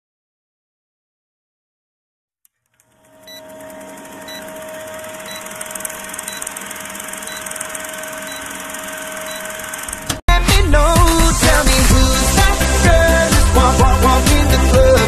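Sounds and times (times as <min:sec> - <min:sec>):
film projector whirring: 0:02.7 - 0:10.2.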